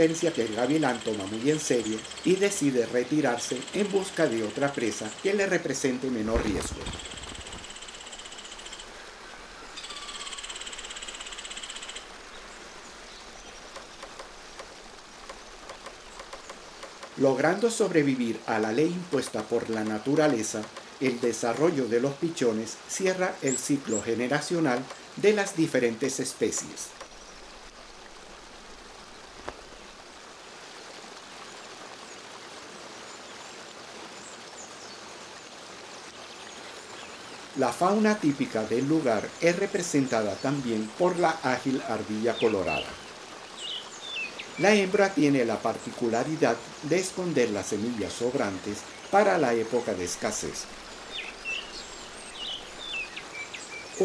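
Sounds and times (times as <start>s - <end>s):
faint steady background noise: 0.0s - 54.0s
forest stream rushing: 0.0s - 54.0s
faint high chirps: 6.5s - 12.1s
light scattered ticks: 13.6s - 22.4s, 23.6s - 27.2s.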